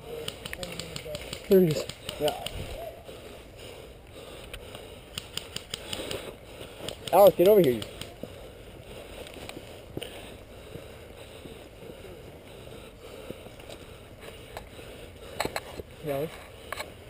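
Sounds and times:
gear clicks: 0:00.2 - 0:02.6, 0:04.4 - 0:08.3.

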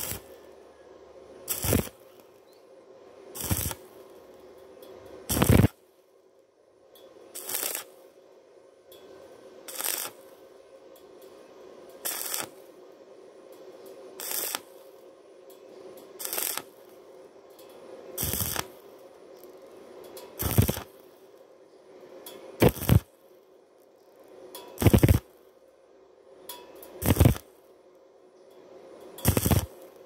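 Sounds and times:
arc welding bursts: 0:00.0 - 0:00.4, 0:01.4 - 0:02.4, 0:03.3 - 0:04.4, 0:05.3 - 0:05.8, 0:07.4 - 0:08.1, 0:09.7 - 0:10.4, 0:12.0 - 0:12.7, 0:14.2 - 0:15.0, 0:16.2 - 0:17.0, 0:18.2 - 0:19.0, 0:20.4 - 0:21.3, 0:22.6 - 0:23.1, 0:24.8 - 0:25.3, 0:27.0 - 0:27.6, 0:29.2 - 0:30.0
steady electrical hum: 0:00.0 - 0:30.0.

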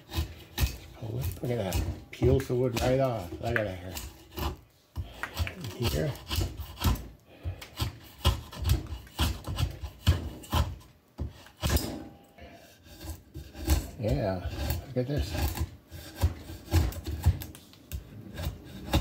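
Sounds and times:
drawknife scraping wood: 0:00.0 - 0:19.0.

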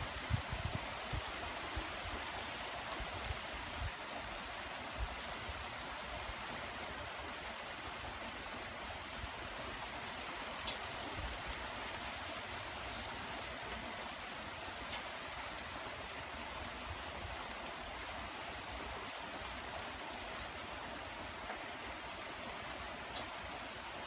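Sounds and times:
light rain falling: 0:00.0 - 0:24.0
raindrop ticks: 0:10.6 - 0:10.9, 0:14.8 - 0:15.1, 0:23.0 - 0:23.4.

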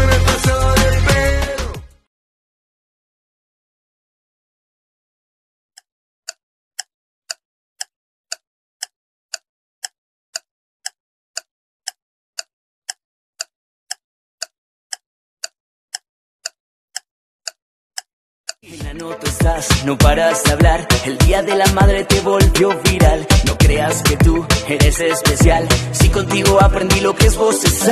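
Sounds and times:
timer ticking: 0:06.3 - 0:27.9.

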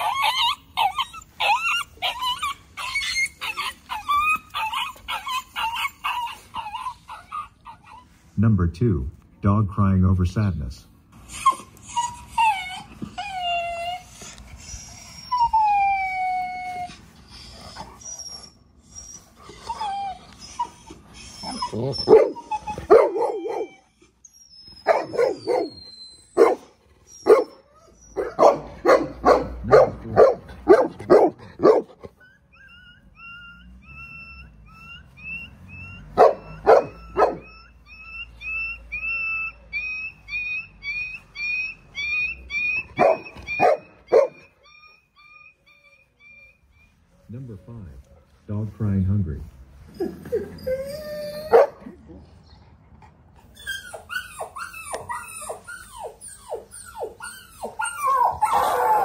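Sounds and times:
recorded dog whimpering: 0:00.0 - 0:08.4, 0:11.2 - 0:48.3, 0:49.8 - 0:59.0
short high squeaks: 0:21.4 - 0:28.4, 0:32.2 - 0:47.4
dog barking: 0:22.1 - 0:23.7, 0:24.9 - 0:25.8, 0:26.4 - 0:26.7, 0:27.3 - 0:27.5, 0:28.2 - 0:31.9, 0:36.2 - 0:37.4, 0:43.0 - 0:44.4, 0:51.5 - 0:51.8.

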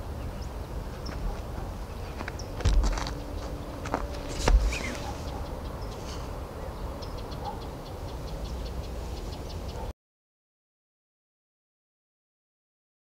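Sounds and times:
wind rumble: 0:00.0 - 0:09.8.

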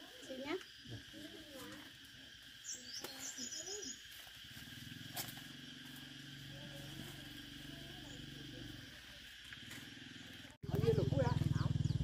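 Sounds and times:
high bird chirps: 0:02.6 - 0:04.1
small engine idling: 0:04.1 - 0:12.0.

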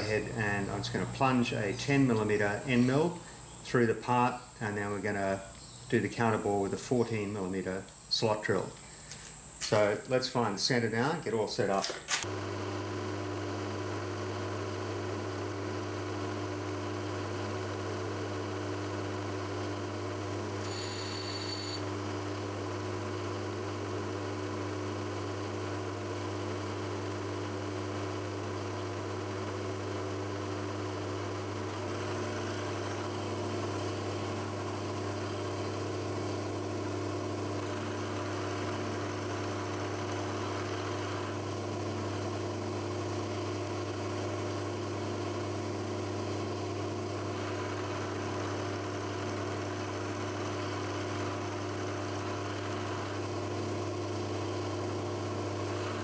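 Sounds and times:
milling machine spindle hum: 0:00.0 - 0:56.0
brief high tone: 0:20.6 - 0:21.8.

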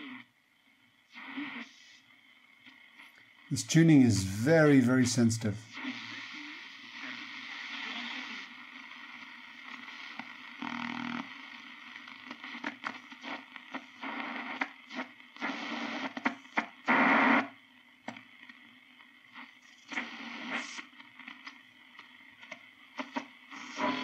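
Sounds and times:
shortwave radio static and crackles: 0:00.0 - 0:24.0
radio signal blips: 0:03.5 - 0:11.3, 0:23.0 - 0:24.0.

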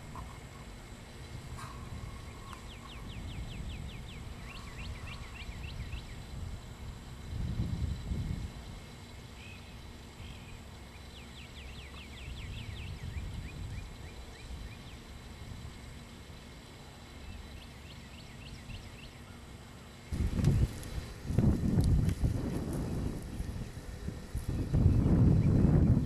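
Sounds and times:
wind rumbling on microphone: 0:00.0 - 0:09.0, 0:12.0 - 0:15.9, 0:20.1 - 0:26.0
bird chirping: 0:01.6 - 0:06.3, 0:08.7 - 0:20.8.

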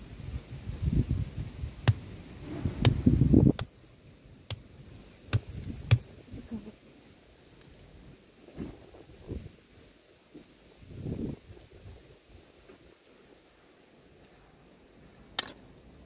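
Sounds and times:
knife chopping hard husk: 0:01.8 - 0:02.0.

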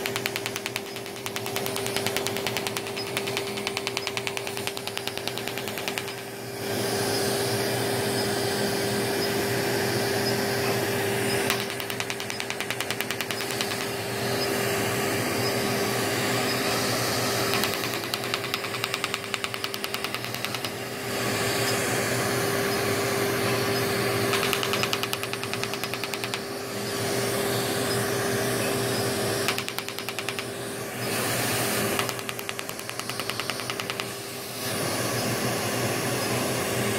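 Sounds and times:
laser snapping clicks: 0:00.0 - 0:06.3, 0:11.5 - 0:14.0, 0:17.5 - 0:20.8, 0:24.3 - 0:26.5, 0:29.5 - 0:30.6, 0:32.0 - 0:34.2
machine hum and hiss: 0:00.0 - 0:36.9.

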